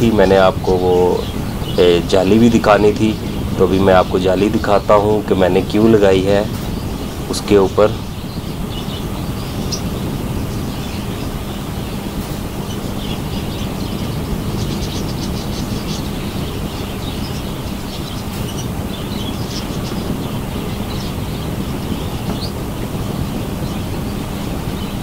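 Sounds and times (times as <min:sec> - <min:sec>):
budgerigars twittering: 0:00.0 - 0:25.0
low rumble and hum: 0:00.0 - 0:25.0.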